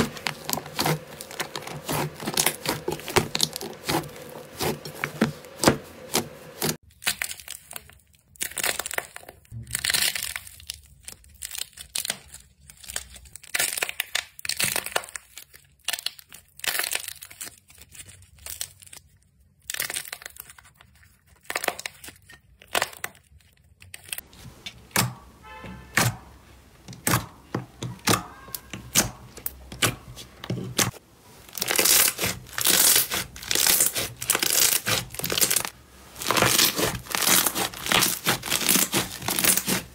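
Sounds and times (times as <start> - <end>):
hands squeezing slime: 30.8 - 39.9.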